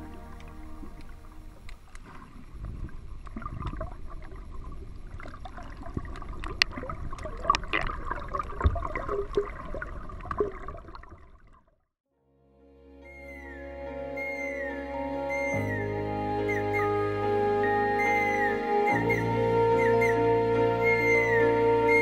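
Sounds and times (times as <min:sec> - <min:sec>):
water sloshing and gurgling: 0:00.0 - 0:12.0
sharp underwater clicks and pops: 0:05.2 - 0:11.6.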